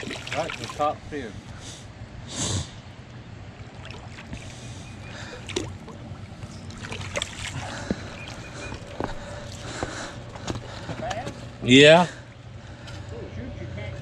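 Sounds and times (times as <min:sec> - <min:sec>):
low background rush: 0:00.0 - 0:14.0
footsteps on muddy rocky bank: 0:04.2 - 0:11.5.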